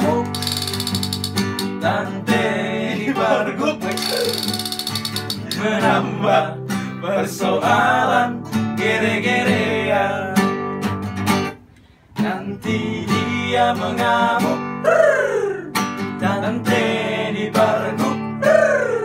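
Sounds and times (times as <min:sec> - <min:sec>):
classical guitar strummed: 0:00.0 - 0:07.0
men singing along: 0:01.6 - 0:04.6, 0:05.2 - 0:10.6, 0:12.2 - 0:14.8, 0:16.1 - 0:18.6.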